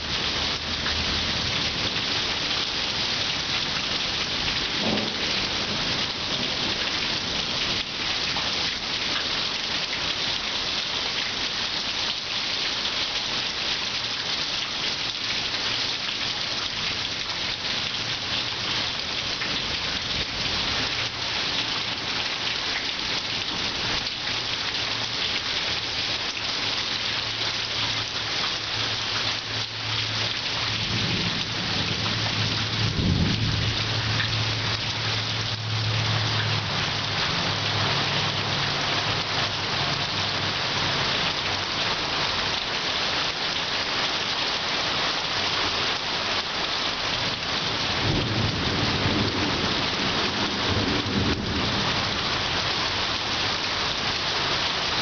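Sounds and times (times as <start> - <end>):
rain hissing on trees: 0.0 - 55.0
thunder rumbling: 4.6 - 6.6, 30.9 - 34.8, 48.0 - 52.0.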